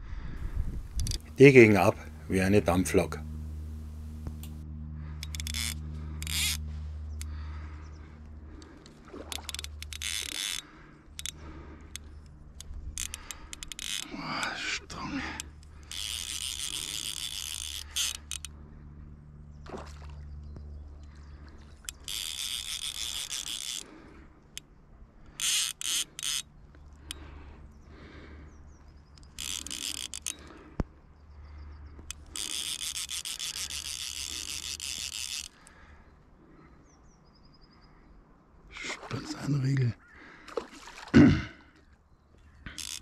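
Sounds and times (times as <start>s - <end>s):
fishing reel drag ratcheting: 0.5s - 7.7s, 8.6s - 18.7s, 21.7s - 24.7s, 25.3s - 27.4s, 29.0s - 30.7s, 32.0s - 35.9s, 42.7s - 43.0s.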